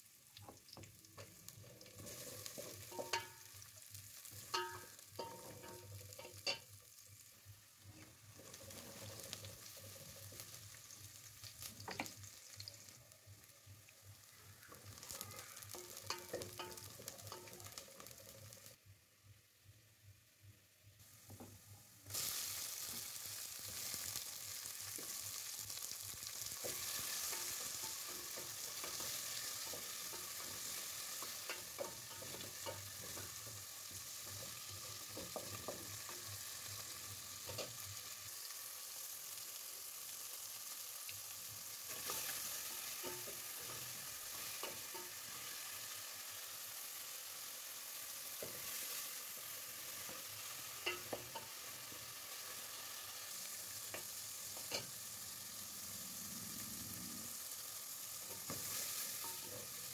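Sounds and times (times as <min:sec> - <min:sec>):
food sizzling in hot oil: 0:00.0 - 0:18.8, 0:21.0 - 0:59.9.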